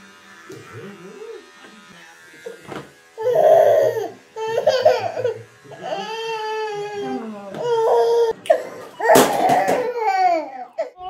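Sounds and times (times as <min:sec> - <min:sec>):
baby squealing: 0:07.6 - 0:11.0.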